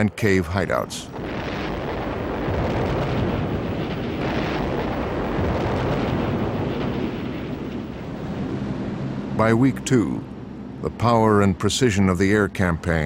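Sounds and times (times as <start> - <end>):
bomb explosions rumbling roar: 1.0 - 10.3.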